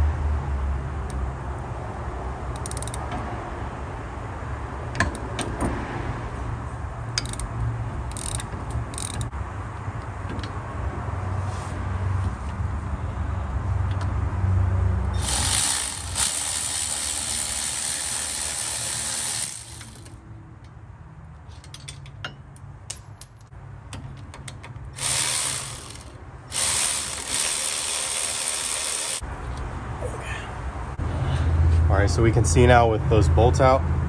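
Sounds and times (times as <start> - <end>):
sharp metal clicks: 2.5 - 3.2, 7.2 - 9.3
electric ratchet running: 15.1 - 20.2, 25.0 - 29.2.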